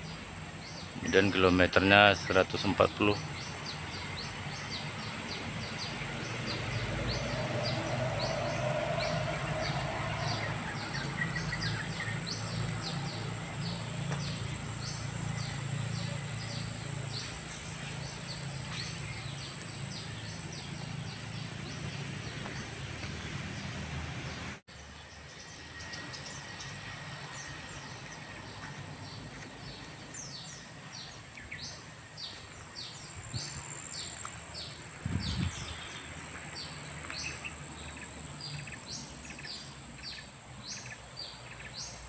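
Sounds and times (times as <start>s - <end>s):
high insect drone: 2.8s - 22.2s.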